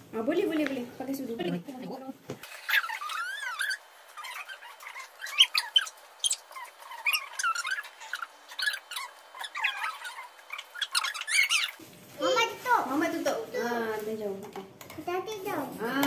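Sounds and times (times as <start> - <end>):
high-pitched squeaky chatter: 1.4 - 12.8.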